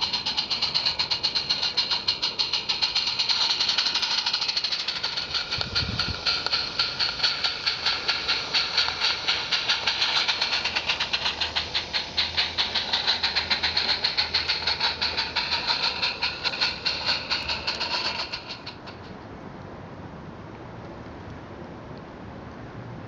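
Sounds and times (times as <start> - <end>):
small steam locomotive running past: 0.0 - 20.2.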